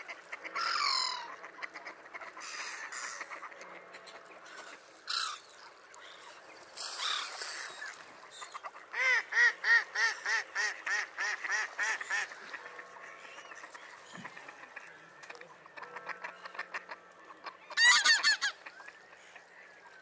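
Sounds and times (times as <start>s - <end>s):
waterbird calls: 0.0s - 20.0s
duck quacking: 8.6s - 19.4s.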